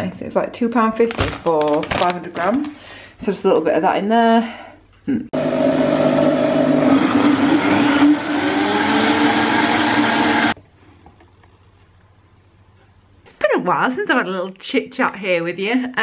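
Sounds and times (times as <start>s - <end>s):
blender motor running: 5.4s - 10.6s.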